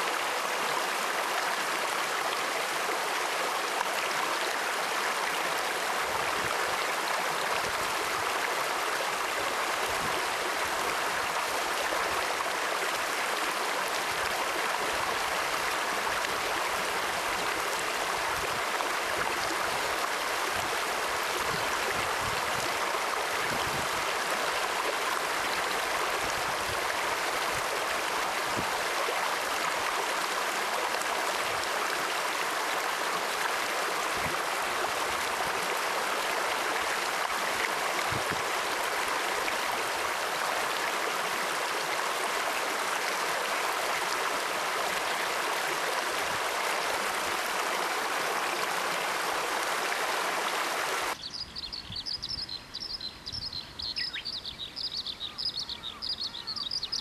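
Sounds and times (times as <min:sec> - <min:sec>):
flowing water rushing: 0:00.0 - 0:51.2.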